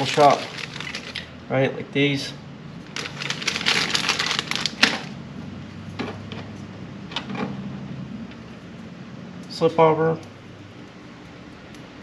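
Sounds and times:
plastic packaging crinkling: 0.0 - 1.3, 2.8 - 5.2.

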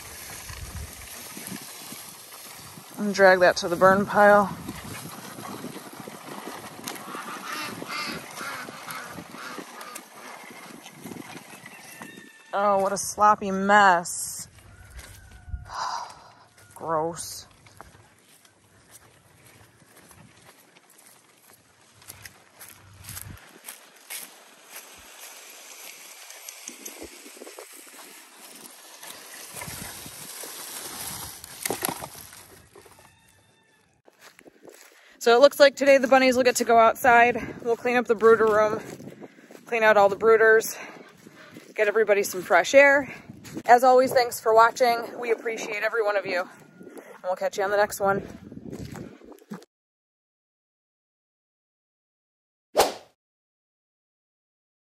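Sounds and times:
footsteps crunching through leaves: 0.0 - 12.5, 14.5 - 15.5, 17.4 - 35.1, 48.3 - 49.4
branch scraping over wet ground: 0.0 - 13.3, 17.2 - 33.4.

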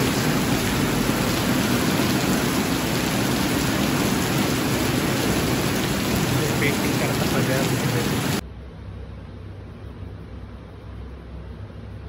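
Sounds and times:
heavy rain on concrete roof: 0.0 - 8.4.

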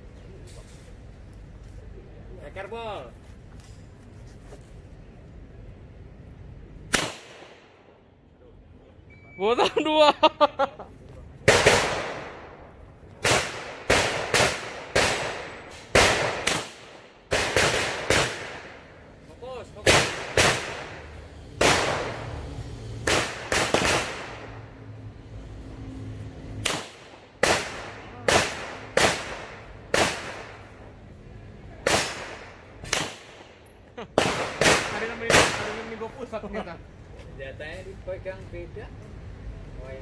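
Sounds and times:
pistol shots with echo: 6.9 - 7.8, 13.2 - 18.9, 21.6 - 22.4, 23.0 - 24.5, 26.6 - 30.7, 34.2 - 36.0.

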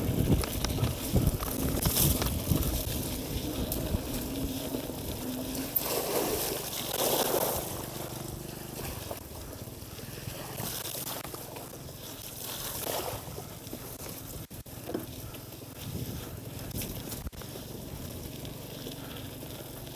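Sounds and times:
wind on microphone: 0.0 - 5.4, 15.8 - 16.8
bike tyres on muddy track: 0.0 - 19.9.

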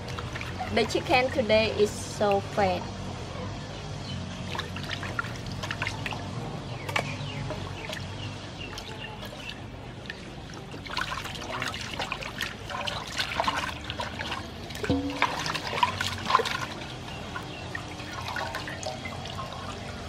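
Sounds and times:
water sloshing in metal basin: 0.0 - 2.6, 4.4 - 20.0
metal basin knock and ring: 14.8 - 16.0.

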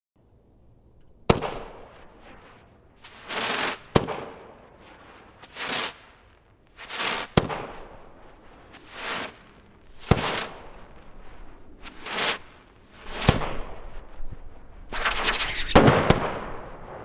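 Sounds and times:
loud firework bangs: 1.3 - 2.5, 15.0 - 17.0
firework hissing rushes: 2.2 - 3.9, 5.4 - 6.2, 6.8 - 16.9.

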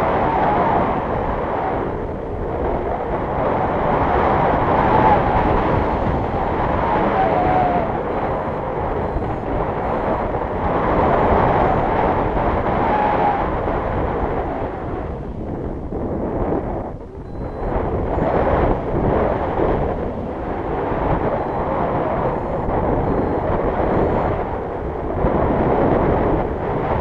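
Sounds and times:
wind rushing over microphone: 0.0 - 27.0
faint whistle: 17.2 - 18.3, 21.3 - 24.2.

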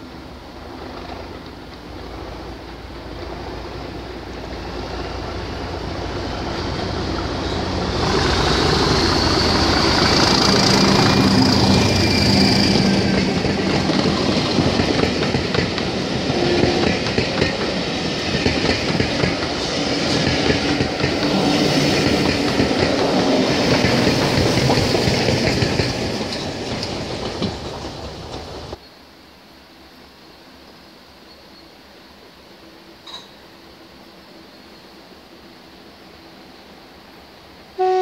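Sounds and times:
diesel locomotive engine passing: 0.0 - 28.8.

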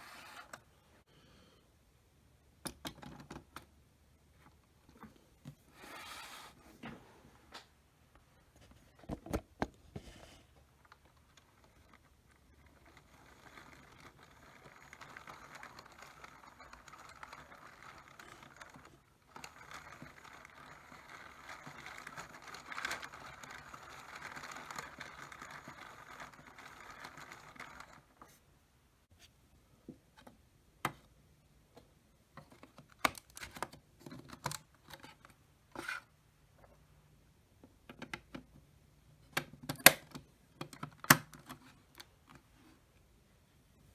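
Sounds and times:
plastic pieces clicking: 10.8 - 28.1
plastic toy train rattling: 10.8 - 28.3.

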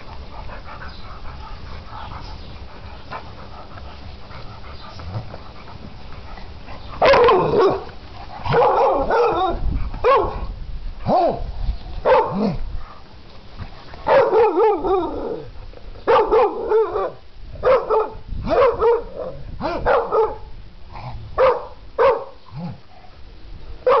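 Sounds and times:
dog barking and yipping: 7.0 - 10.4, 12.0 - 12.6, 14.0 - 15.2, 16.1 - 20.5, 21.4 - 22.4.

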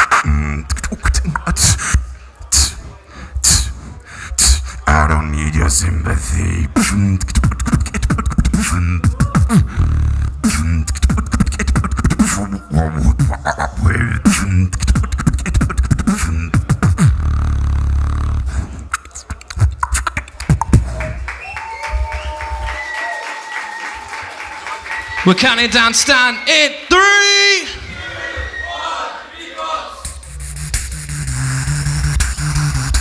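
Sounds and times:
person beatboxing into microphone: 0.0 - 21.3, 30.0 - 33.0.

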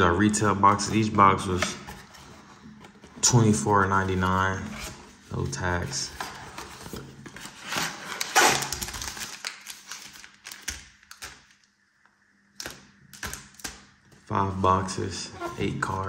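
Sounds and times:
foil card packs crinkling: 5.3 - 11.7.

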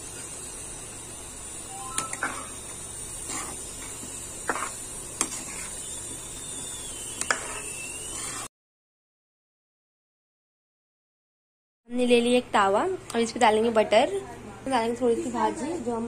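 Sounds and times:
simmering hiss: 0.0 - 8.5.

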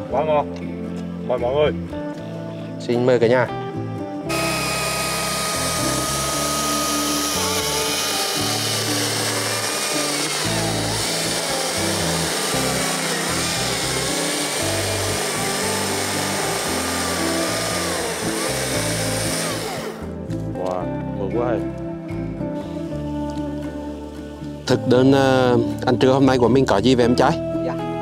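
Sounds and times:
background music: 0.0 - 28.0
chainsaw cutting log: 4.3 - 20.2.

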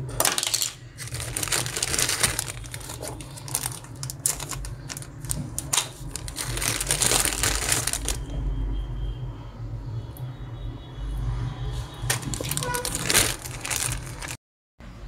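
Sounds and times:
plastic bags crinkling: 0.2 - 8.4, 12.0 - 14.4.

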